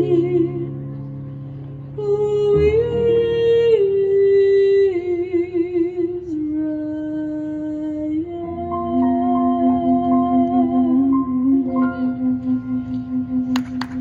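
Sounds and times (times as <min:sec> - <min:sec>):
woman singing: 0:00.0 - 0:00.8, 0:02.0 - 0:11.8
keyboard chords: 0:00.0 - 0:04.8, 0:08.3 - 0:14.0
flute melody: 0:08.9 - 0:14.0.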